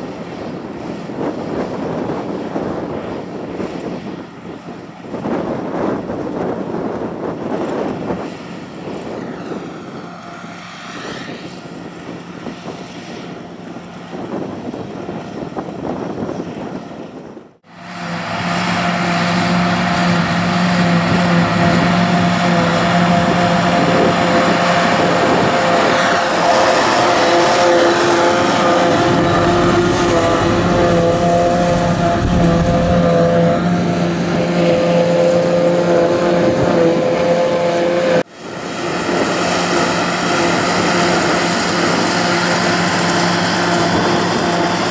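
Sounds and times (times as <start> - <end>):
wind: 0.0 - 44.9
tractor engines under load: 3.7 - 44.9
whining tones: 17.8 - 44.9
forage harvester chopping grass: 17.9 - 44.9.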